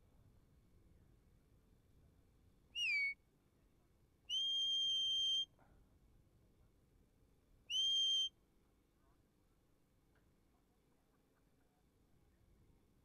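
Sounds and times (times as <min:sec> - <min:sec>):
whistle commands: 0:02.8 - 0:03.2, 0:04.3 - 0:05.6, 0:07.7 - 0:08.3.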